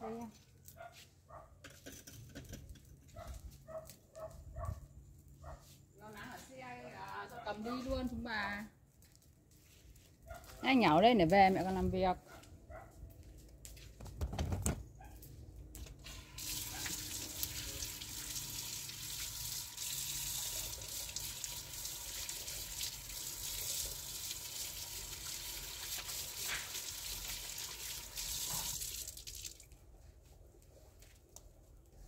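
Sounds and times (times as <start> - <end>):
water running: 16.1 - 29.7.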